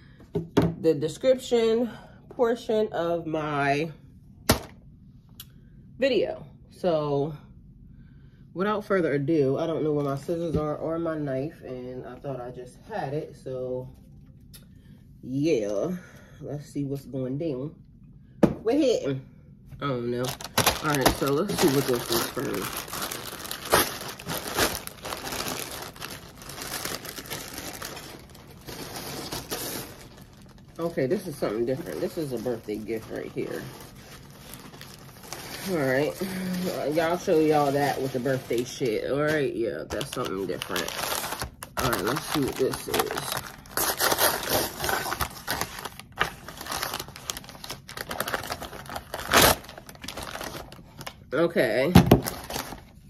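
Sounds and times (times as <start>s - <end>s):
plastic mailer bag crinkling: 20.1s - 51.3s, 52.0s - 53.0s.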